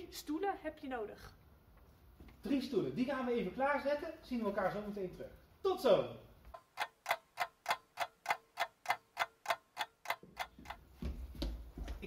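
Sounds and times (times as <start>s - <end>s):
clock ticking: 6.5s - 10.9s.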